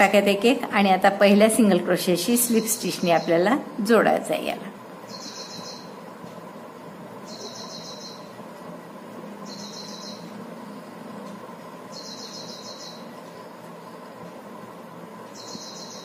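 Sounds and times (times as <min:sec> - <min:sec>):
faint background hum: 0:00.0 - 0:16.0
bird trilled chirps: 0:05.1 - 0:05.9, 0:07.3 - 0:08.3, 0:09.4 - 0:10.3, 0:11.9 - 0:13.1, 0:15.3 - 0:16.0.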